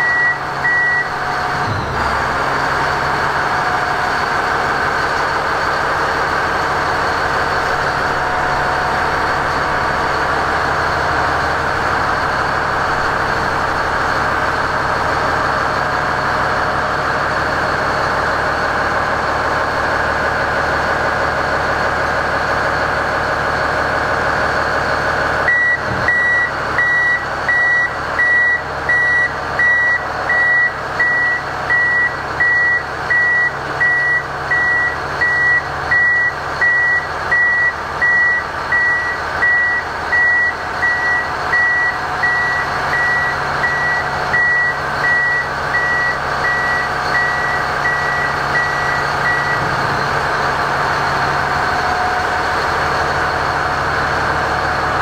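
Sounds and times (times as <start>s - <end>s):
reverse alarm beeping: 0.0s - 1.2s, 25.4s - 49.8s
diesel engine running: 0.0s - 55.0s.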